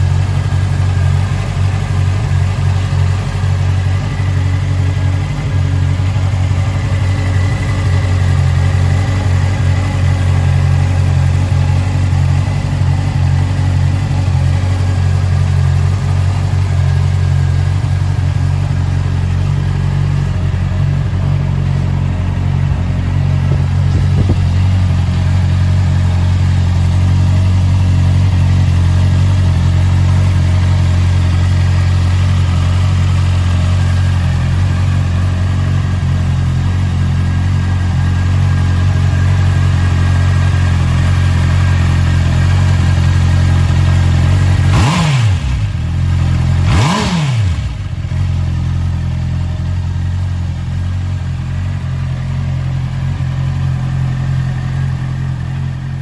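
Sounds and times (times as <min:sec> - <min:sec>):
motorcycle engine idling: 0:00.0 - 0:56.0.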